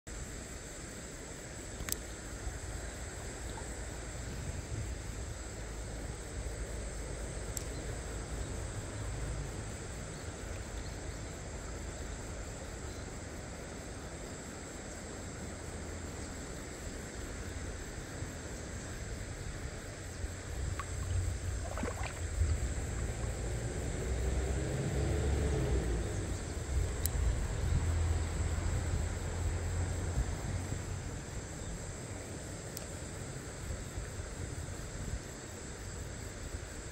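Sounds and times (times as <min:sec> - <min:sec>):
wind rumbling on microphone: 0:19.0 - 0:32.0
stream running over rocks: 0:19.5 - 0:25.4.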